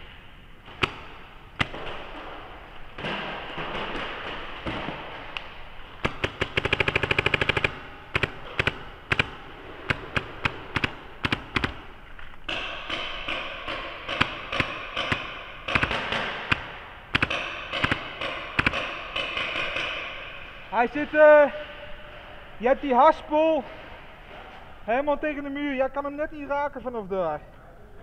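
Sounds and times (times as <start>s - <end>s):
paintball markers firing: 3.0s - 20.1s.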